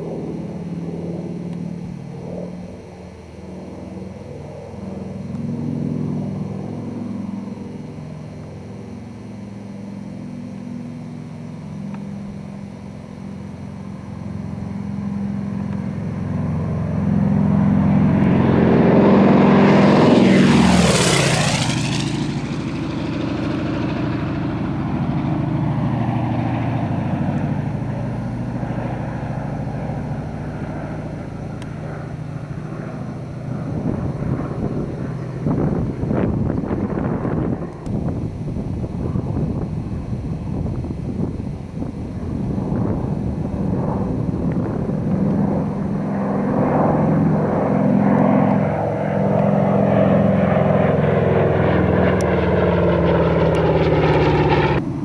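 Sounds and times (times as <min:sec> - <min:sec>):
propeller plane engines flyby: 0:00.0 - 0:55.0.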